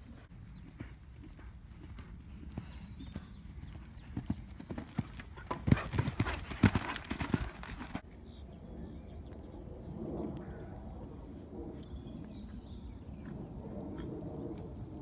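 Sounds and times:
hoofbeats on sand: 0:00.4 - 0:08.0.

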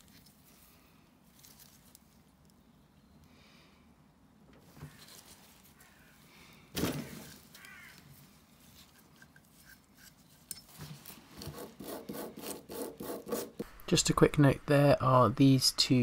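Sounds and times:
metal tools clicking and scraping: 0:08.9 - 0:10.8.

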